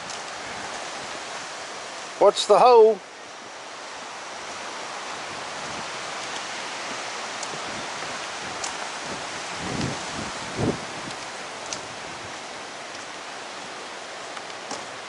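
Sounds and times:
rushing wind: 0.0s - 15.0s
footsteps on wooden boardwalk: 3.4s - 15.0s.

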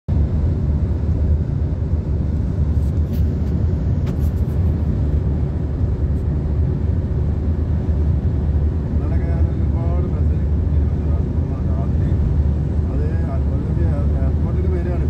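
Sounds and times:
car cabin road and engine rumble: 0.1s - 15.0s.

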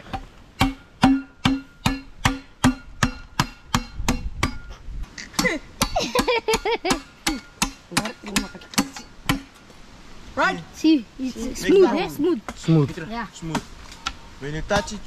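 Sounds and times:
machete chopping bamboo: 0.0s - 4.7s, 6.9s - 9.6s.

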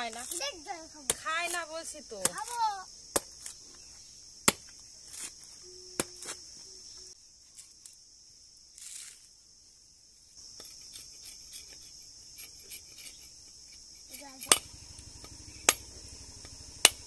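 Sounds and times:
crickets chirping: 0.0s - 17.0s
machete chopping coconut husk: 2.2s - 3.6s, 4.4s - 5.4s, 14.1s - 17.0s.

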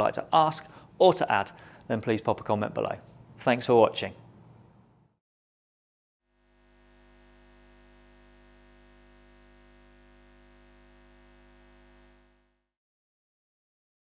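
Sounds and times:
electrical hum with hiss: 6.3s - 12.7s.

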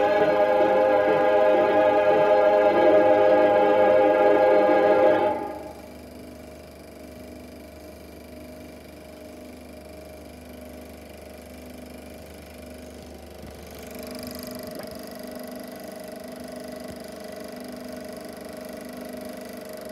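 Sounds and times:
film projector whirring: 0.0s - 19.9s.

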